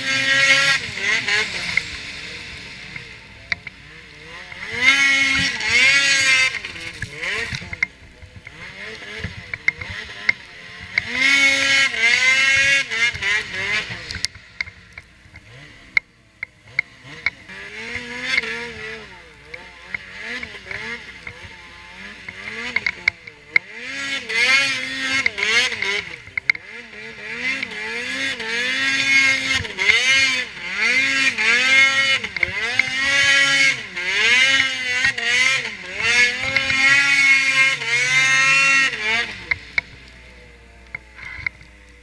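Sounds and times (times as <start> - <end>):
snowmobile engine revving: 0.0 - 42.0
sharp clicks: 1.4 - 2.1.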